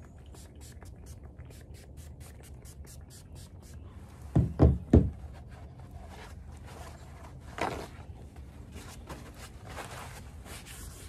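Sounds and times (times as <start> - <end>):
paper towel scuffing on hull: 4.1 - 11.0.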